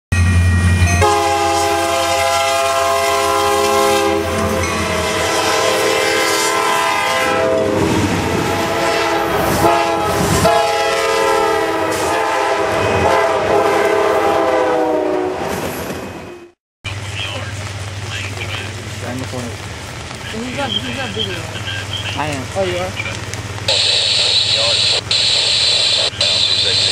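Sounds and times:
locomotive horn blasts: 0:00.9 - 0:15.5
low engine rumble: 0:16.9 - 0:26.9.

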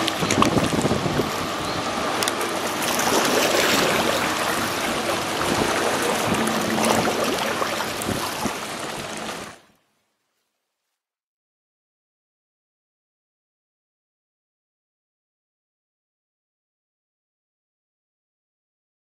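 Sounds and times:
water rushing and splashing: 0:00.0 - 0:09.8.

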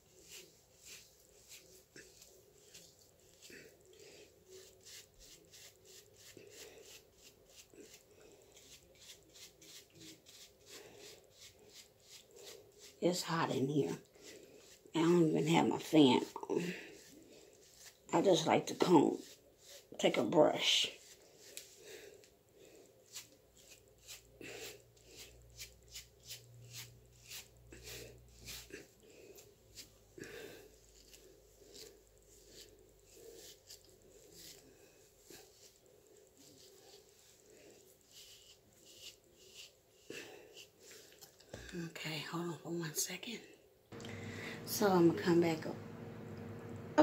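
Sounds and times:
scratchy rustle of hair grooming: 0:00.0 - 0:22.3, 0:23.0 - 0:41.4
hairbrush bristle swishes: 0:00.1 - 0:03.5, 0:30.9 - 0:34.6, 0:35.3 - 0:41.2.

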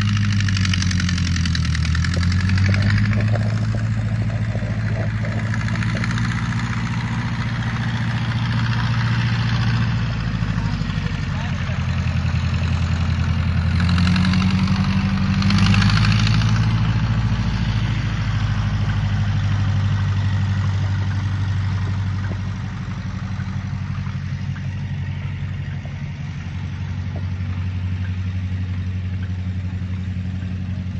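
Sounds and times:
tractor engine running: 0:00.0 - 0:30.9.

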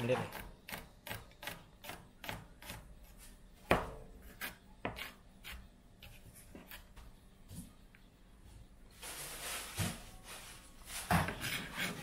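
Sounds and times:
knife chopping on cutting board: 0:03.7 - 0:06.9.

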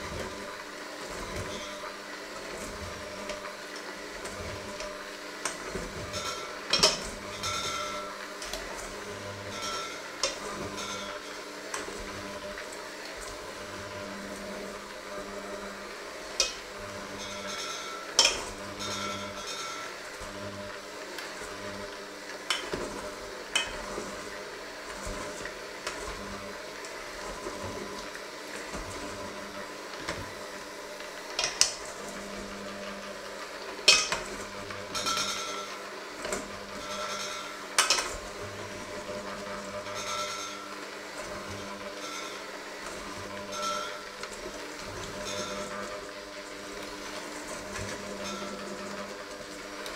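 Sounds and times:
beaters scraping metal bowl: 0:00.0 - 0:12.6, 0:16.4 - 0:20.6, 0:22.4 - 0:49.9
electric hand mixer running: 0:00.0 - 0:49.9
beater clanking on bowl: 0:04.3 - 0:08.7, 0:09.4 - 0:12.0, 0:16.4 - 0:20.0, 0:22.4 - 0:24.2, 0:31.3 - 0:33.0, 0:33.8 - 0:46.0, 0:47.6 - 0:49.0.

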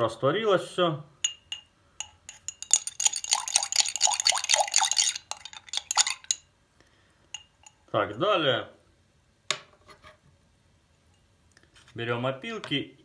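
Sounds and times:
spoon clinking in a glass: 0:01.2 - 0:06.5, 0:07.3 - 0:07.9.

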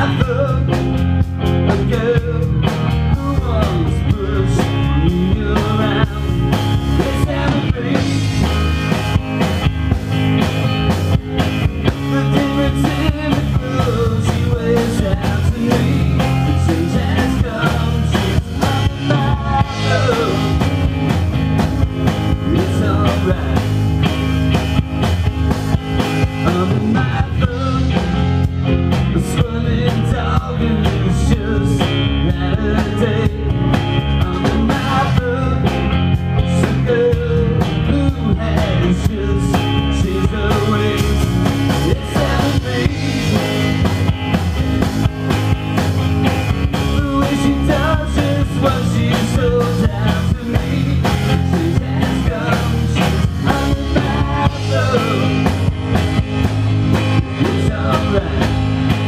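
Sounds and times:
bass guitar: 0:00.0 - 0:59.0
drum kit: 0:00.0 - 0:59.0
electric guitar: 0:00.0 - 0:59.0.

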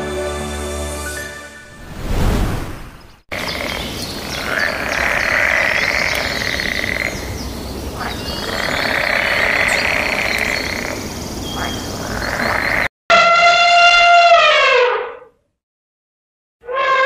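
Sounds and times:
chorus of frogs calling: 0:03.3 - 0:12.9.

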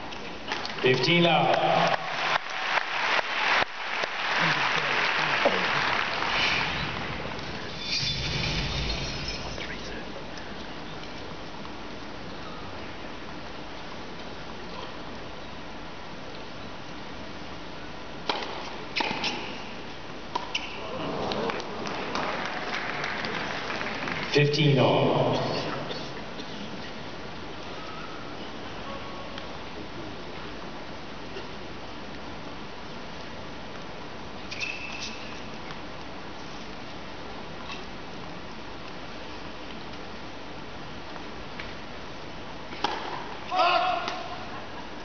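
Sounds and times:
arena crowd noise: 0:00.0 - 0:11.2, 0:20.7 - 0:30.7
crowd applauding: 0:00.6 - 0:07.5, 0:21.3 - 0:24.4.

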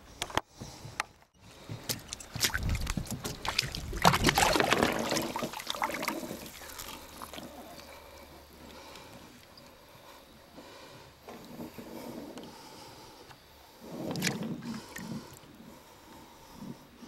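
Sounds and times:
water splashing and sloshing: 0:01.5 - 0:09.9, 0:13.8 - 0:15.4.

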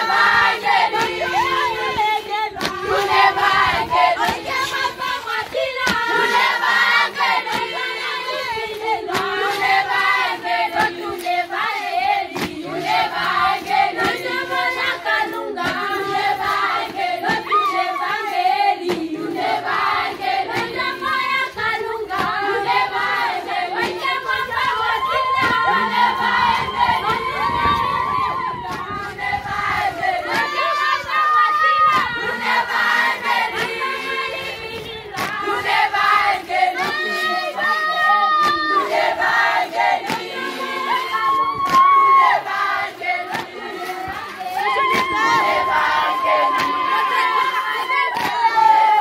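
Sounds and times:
group singing in chorus: 0:00.0 - 0:49.0
hand claps: 0:00.9 - 0:01.6, 0:02.5 - 0:17.6, 0:18.8 - 0:21.3, 0:23.8 - 0:27.7, 0:30.2 - 0:30.6, 0:31.9 - 0:37.4, 0:38.3 - 0:39.3, 0:40.0 - 0:40.4, 0:41.2 - 0:49.0.

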